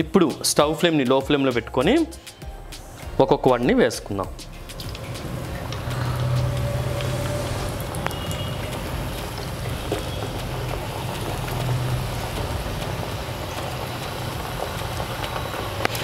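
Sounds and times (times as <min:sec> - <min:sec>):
food deep-frying in oil: 0:03.9 - 0:16.0.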